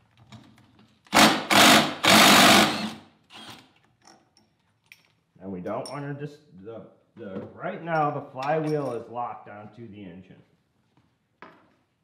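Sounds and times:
impact wrench hammering: 0:01.1 - 0:03.0.

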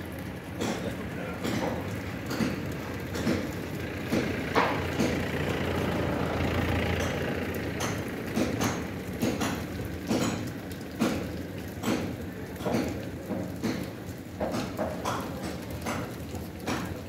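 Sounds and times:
truck engine idling: 0:02.8 - 0:08.4.

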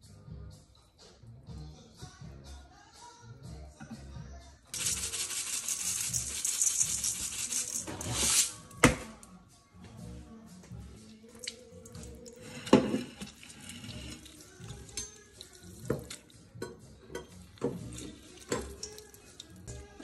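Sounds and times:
knocks and clatters in sink: 0:15.8 - 0:18.9
tap running into a steel sink: 0:17.2 - 0:19.1.

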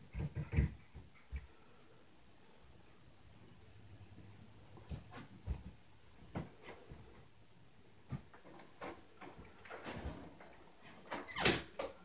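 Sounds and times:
knocks and thumps from upstairs: 0:00.0 - 0:01.5.

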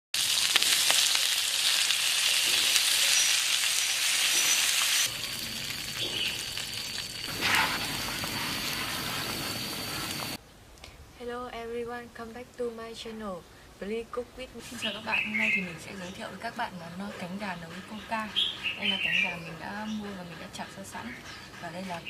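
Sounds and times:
chicken sizzling in hot oil: 0:00.1 - 0:10.4
liquid bubbling in pan: 0:05.0 - 0:10.4
cola being poured: 0:05.1 - 0:10.4.

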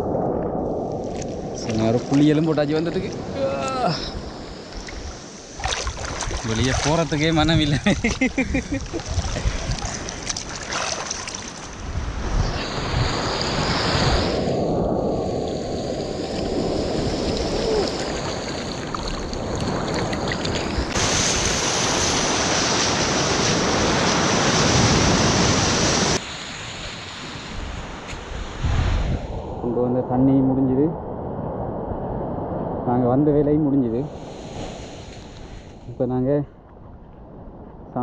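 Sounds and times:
wind buffeting microphone: 0:00.0 - 0:26.2, 0:27.3 - 0:38.0
sea surf washing on shore: 0:00.0 - 0:29.8, 0:33.6 - 0:36.0.

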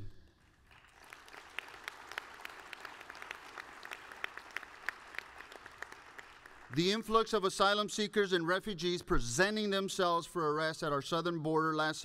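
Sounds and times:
audience applauding: 0:00.4 - 0:07.3.

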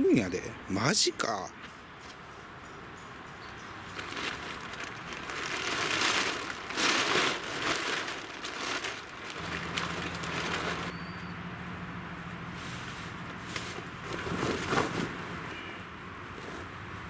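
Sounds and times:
plastic sheet crinkling rustle: 0:03.9 - 0:11.0, 0:12.6 - 0:15.5.

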